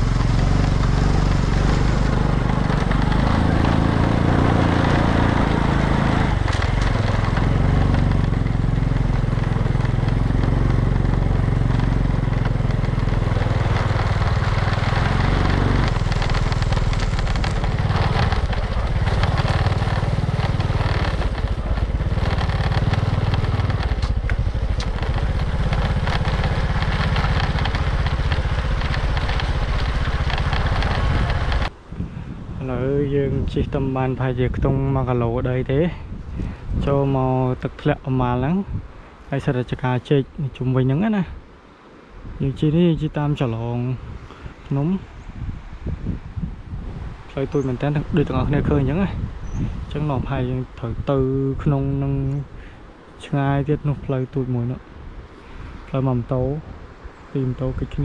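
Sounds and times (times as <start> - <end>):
small motorcycle engine running: 0.0 - 31.7
wind noise: 0.0 - 58.0.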